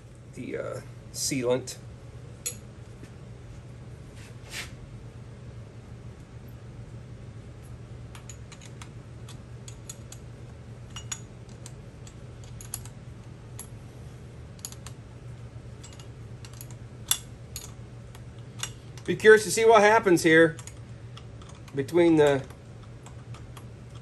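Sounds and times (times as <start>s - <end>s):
steady low hum: 0.0s - 24.0s
small metal parts clicking: 10.9s - 13.0s, 14.6s - 15.0s, 15.8s - 19.2s, 20.5s - 24.0s.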